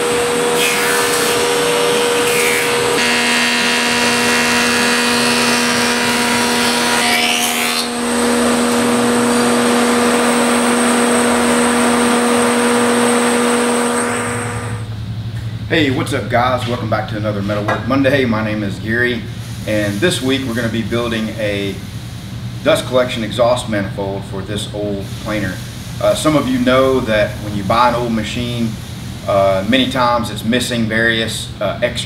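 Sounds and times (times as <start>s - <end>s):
thickness planer running: 0.0s - 14.9s.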